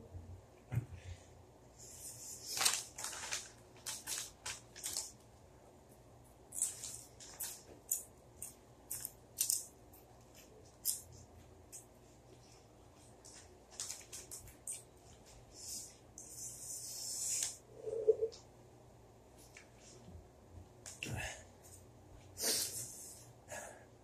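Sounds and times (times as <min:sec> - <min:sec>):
chip bag crinkling: 0:02.4 - 0:05.2, 0:06.5 - 0:08.0, 0:13.2 - 0:14.8.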